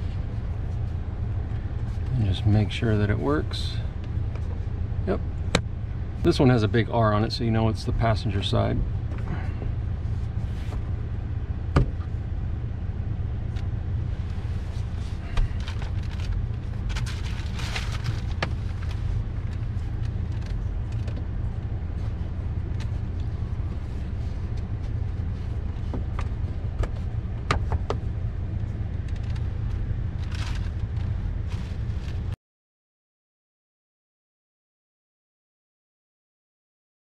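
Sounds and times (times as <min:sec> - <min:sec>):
low rumble inside car cabin: 0:00.0 - 0:32.4
sun visor clicks and knocks: 0:11.7 - 0:12.1, 0:25.8 - 0:28.1.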